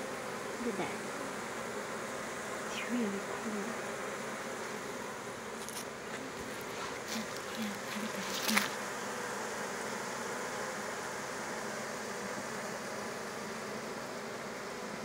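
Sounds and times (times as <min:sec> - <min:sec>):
bee swarm buzzing: 0:00.0 - 0:15.0
rustles: 0:03.1 - 0:10.3.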